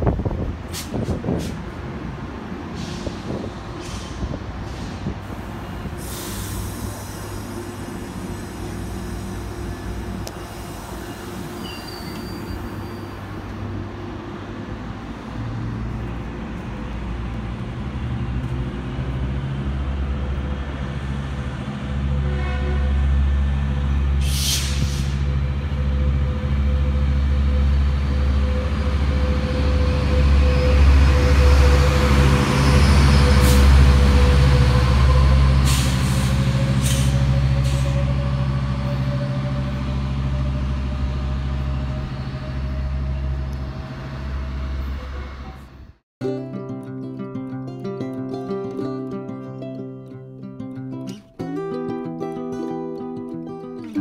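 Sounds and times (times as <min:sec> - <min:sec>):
diesel locomotive engine droning: 0:00.0 - 0:46.0
sharp air hisses: 0:02.7 - 0:09.5, 0:24.2 - 0:25.3.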